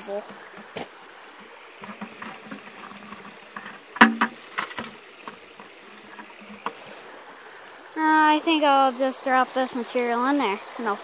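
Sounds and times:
creek water rushing: 0:00.0 - 0:11.0
plastic bucket knocking: 0:01.8 - 0:05.4.

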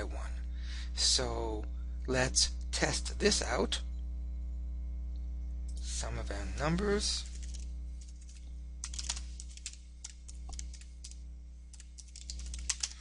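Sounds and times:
low electrical hum: 0:00.0 - 0:13.0
typing on computer keyboard: 0:07.2 - 0:13.0.

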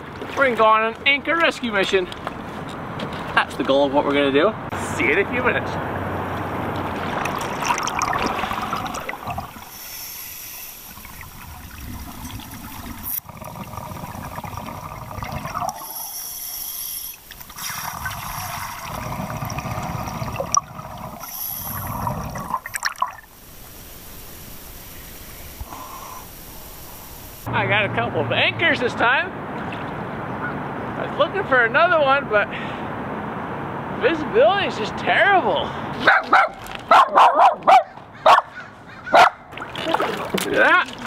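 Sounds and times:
rumble of exhaled bubbles: 0:06.5 - 0:09.9, 0:10.8 - 0:16.0, 0:17.5 - 0:23.4
regulator inhale hiss: 0:09.6 - 0:11.0, 0:15.8 - 0:18.7, 0:21.2 - 0:22.2, 0:24.9 - 0:27.5.

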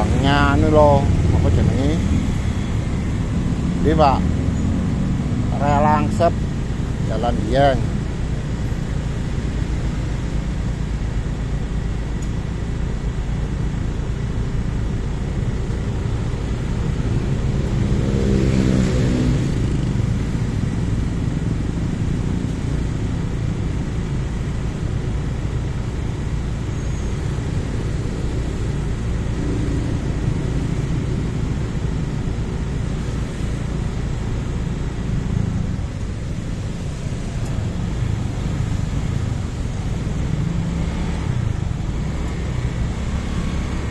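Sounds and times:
engine revving: 0:00.0 - 0:08.0, 0:15.7 - 0:23.8, 0:27.3 - 0:43.9
idling traffic engine rumble: 0:00.0 - 0:43.9.

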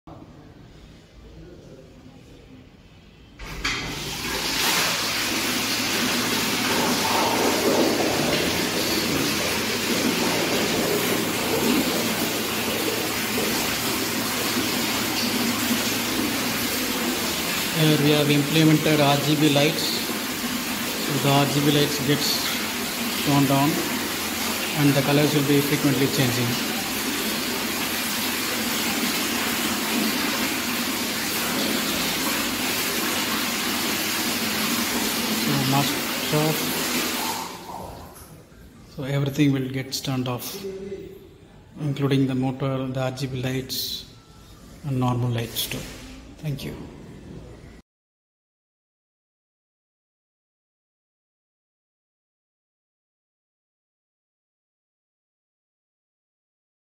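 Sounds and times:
fountain water splashing: 0:03.6 - 0:37.7.

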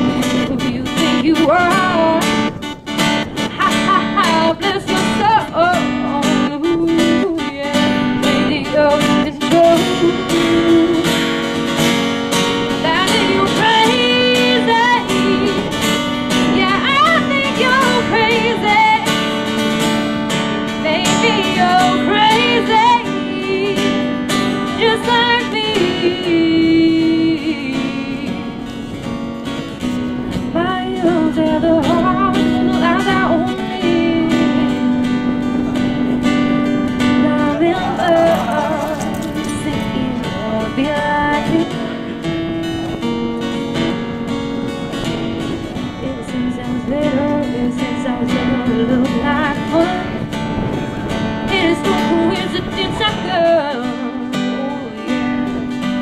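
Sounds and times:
woman singing: 0:00.0 - 0:02.6, 0:03.4 - 0:11.3, 0:12.7 - 0:19.2, 0:20.7 - 0:28.6, 0:30.5 - 0:35.1, 0:37.0 - 0:42.1, 0:45.9 - 0:50.3, 0:51.4 - 0:55.7
acoustic guitar strumming: 0:00.0 - 0:56.0.

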